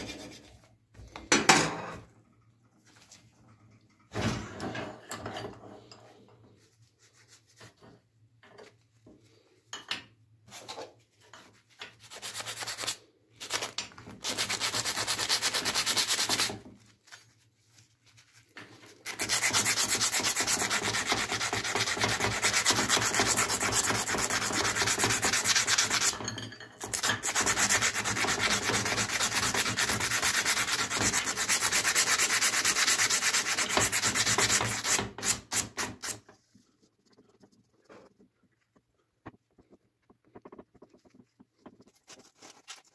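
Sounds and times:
hand file rasping on steel: 19.1s - 26.1s, 26.9s - 36.2s.

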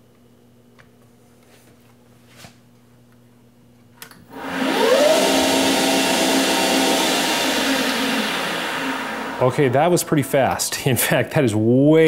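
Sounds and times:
lathe motor whining: 4.3s - 10.7s.

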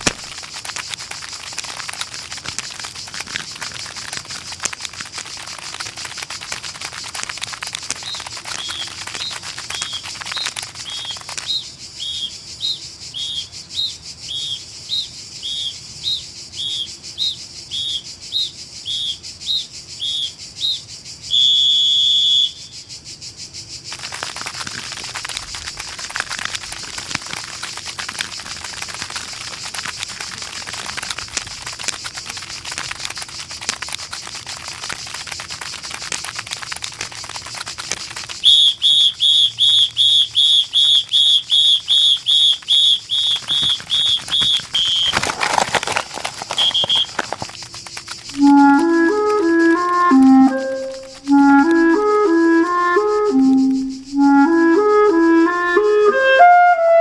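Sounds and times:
crackly hiss: 0.0s - 55.5s
high whistle-like peeps: 8.0s - 23.3s, 38.4s - 45.2s, 46.5s - 47.4s, 48.2s - 57.0s
sustained whistle blast: 21.3s - 22.6s, 48.4s - 57.0s.

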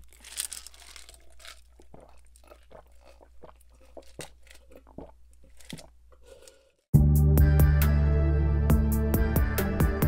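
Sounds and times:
gulping and swallowing: 1.1s - 5.9s.

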